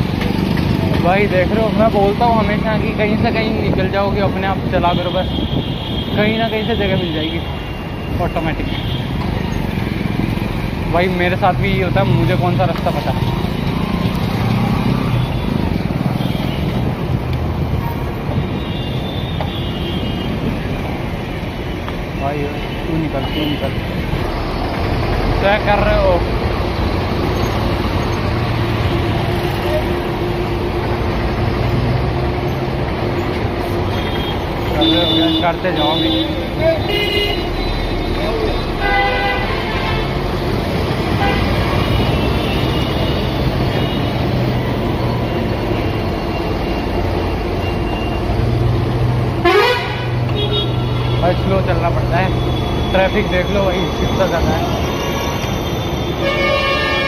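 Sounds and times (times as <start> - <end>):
bus engine: 0.0 - 4.6, 23.4 - 34.8, 35.8 - 57.0
city traffic rumble: 0.0 - 57.0
motorbikes running: 0.0 - 57.0
vehicle horn toot: 33.9 - 38.0, 38.7 - 40.2, 49.4 - 51.3, 54.8 - 57.0.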